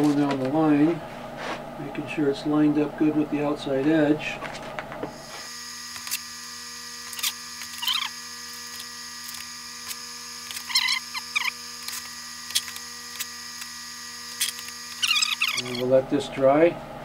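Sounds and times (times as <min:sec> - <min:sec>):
steady electrical hum: 0:00.0 - 0:17.0
clothespins clicking and squeaking: 0:07.2 - 0:08.2, 0:10.5 - 0:13.3, 0:14.4 - 0:15.8.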